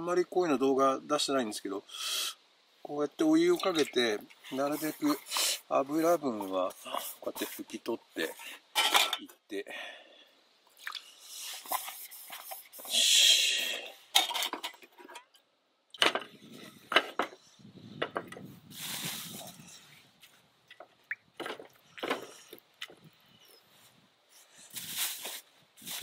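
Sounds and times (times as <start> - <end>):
metal cookware clinks and knocks: 8.8 - 9.2.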